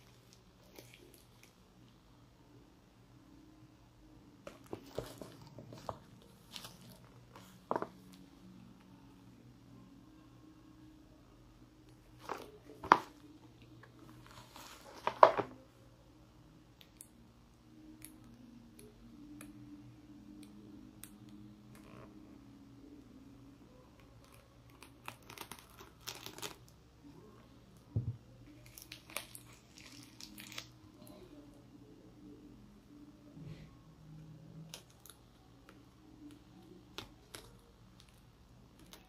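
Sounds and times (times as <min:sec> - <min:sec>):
plastic wrap crinkling: 0:24.2 - 0:26.7, 0:28.5 - 0:30.7.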